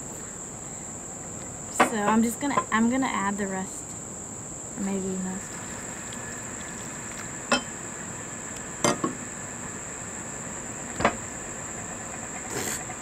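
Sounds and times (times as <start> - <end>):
crickets chirring: 0.0 - 13.0
stirring stiff mixture: 5.4 - 7.4.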